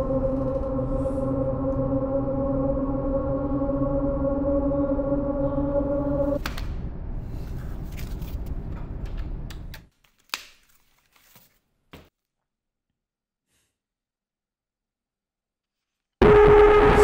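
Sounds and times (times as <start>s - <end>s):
low rumbling with clicks: 0.0s - 9.9s.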